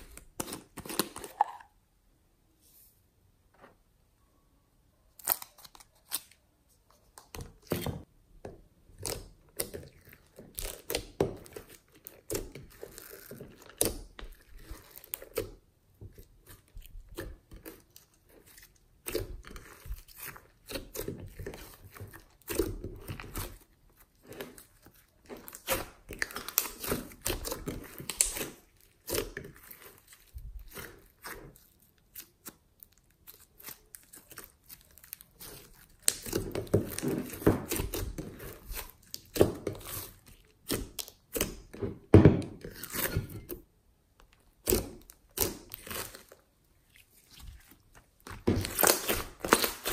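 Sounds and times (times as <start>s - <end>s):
slime popping and crackling: 24.2s - 41.7s, 44.5s - 49.9s.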